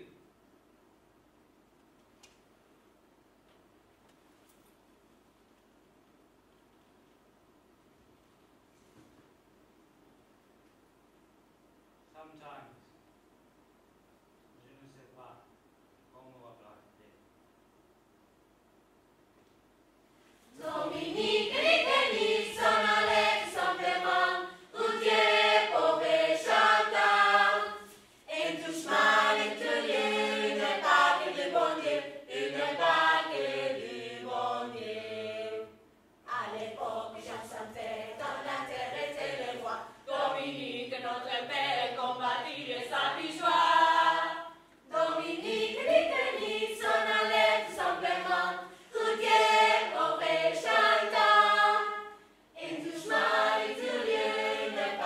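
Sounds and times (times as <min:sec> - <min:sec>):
choir singing unaccompanied: 0:20.5 - 0:55.0.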